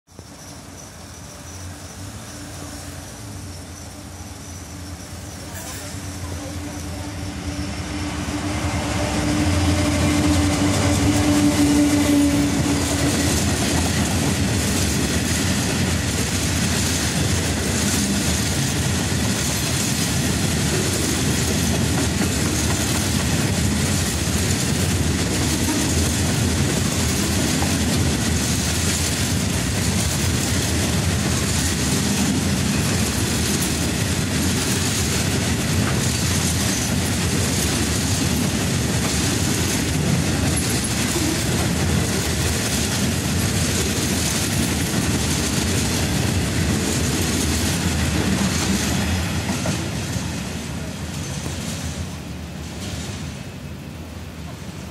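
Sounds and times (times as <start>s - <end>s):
diesel locomotive engine: 0.1s - 54.9s
wagon wheels clattering on track: 12.4s - 50.3s.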